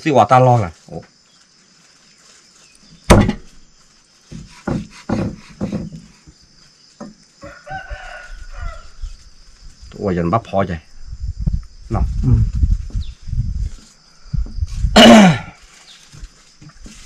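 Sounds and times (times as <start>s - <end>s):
knife chopping meat on wood: 4.3s - 6.0s.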